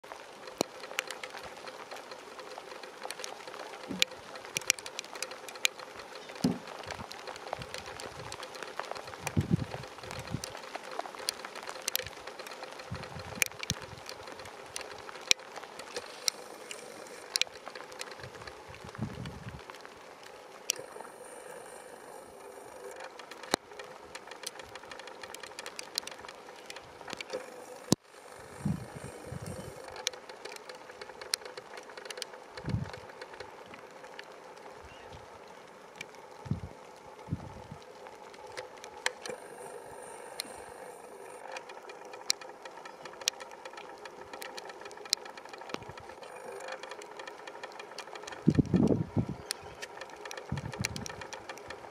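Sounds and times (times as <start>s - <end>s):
low hiss: 0.0s - 51.9s
sharp clicks and ticks: 0.0s - 51.9s
steady mechanical hum: 0.0s - 51.9s.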